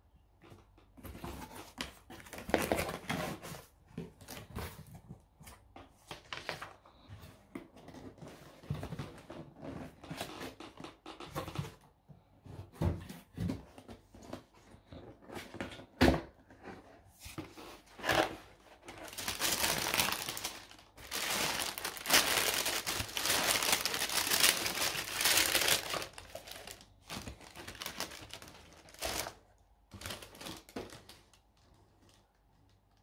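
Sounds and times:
tissue paper rustling: 0:18.8 - 0:31.1.

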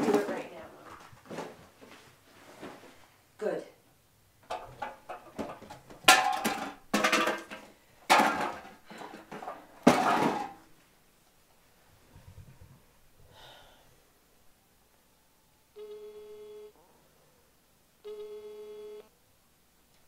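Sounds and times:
rustling and clattering: 0:00.0 - 0:03.2, 0:04.4 - 0:13.0
faint shuffling: 0:00.0 - 0:03.5.

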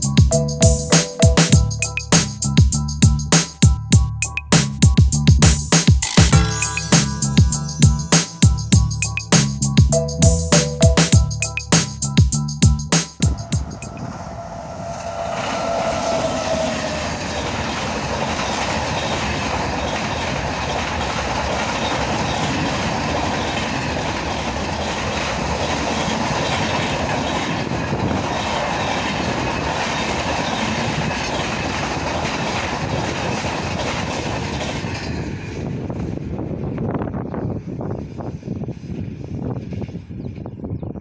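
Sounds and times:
train passing at speed: 0:13.0 - 0:40.8
wheels clattering over rail joints: 0:17.3 - 0:35.8.

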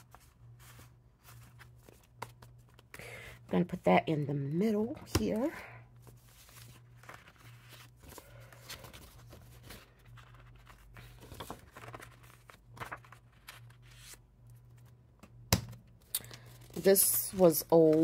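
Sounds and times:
paper rustling and tapping: 0:01.8 - 0:02.9, 0:17.4 - 0:18.0.

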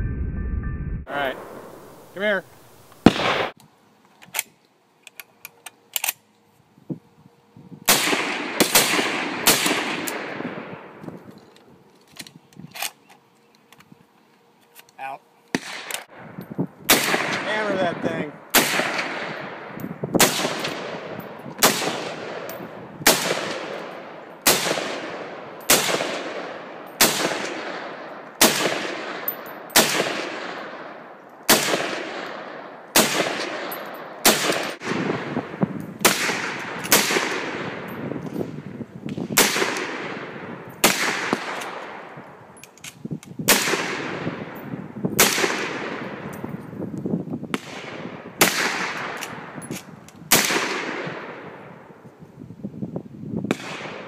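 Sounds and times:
rifle shots with echo: 0:03.0 - 0:03.6, 0:07.9 - 0:11.0, 0:15.5 - 0:16.3, 0:16.9 - 0:38.0, 0:39.2 - 0:42.2, 0:43.5 - 0:44.6, 0:45.2 - 0:46.3, 0:47.5 - 0:49.6, 0:50.3 - 0:51.7, 0:53.5 - 0:54.0.

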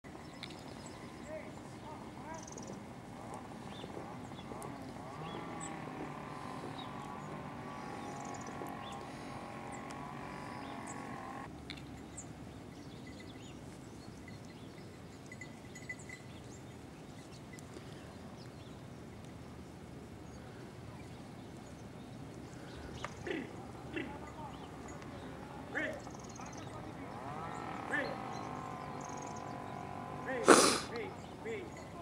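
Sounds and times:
animals tearing and chewing grass: 0:03.0 - 0:11.3.

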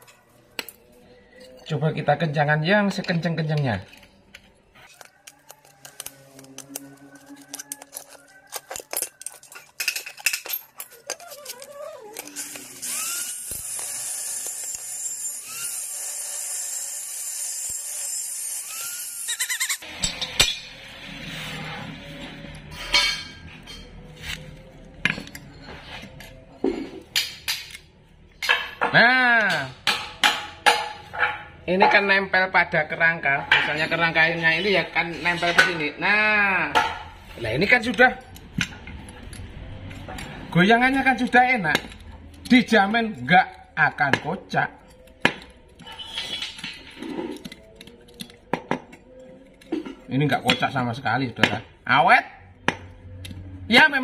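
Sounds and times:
background music: 0:19.8 - 0:54.0.

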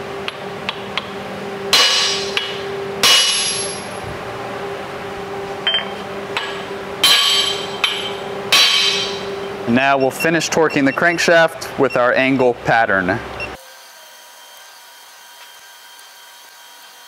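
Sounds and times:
steady low hum: 0:00.0 - 0:13.6
hammer blows on metal: 0:05.6 - 0:09.5.

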